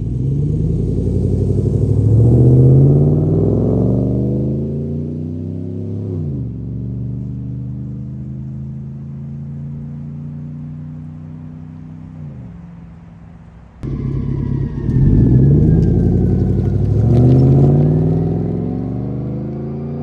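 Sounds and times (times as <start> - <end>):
truck exhaust droning: 0.0 - 19.8
steady exhaust drone: 13.8 - 17.4.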